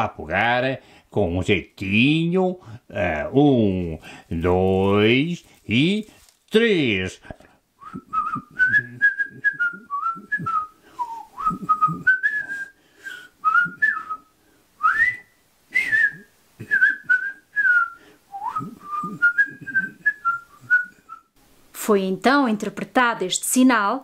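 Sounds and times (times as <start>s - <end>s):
person whistling a tune: 7.8s - 21.3s.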